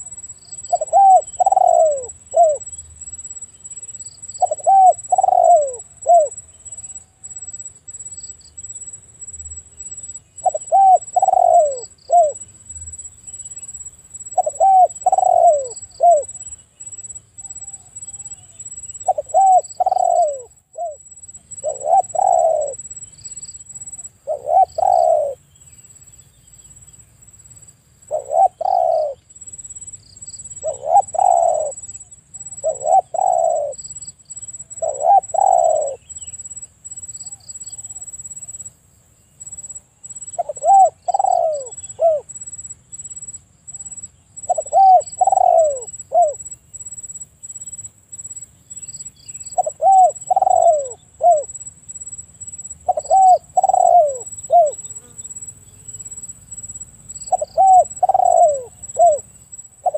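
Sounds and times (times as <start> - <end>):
dove cooing: 0.0 - 2.8, 4.4 - 6.4, 10.4 - 12.4, 14.3 - 16.4, 17.4 - 22.9, 23.8 - 25.4, 28.1 - 29.2, 30.6 - 33.8, 34.7 - 36.1, 40.4 - 42.3, 43.7 - 46.4, 49.5 - 51.5, 52.8 - 55.2, 57.3 - 59.9.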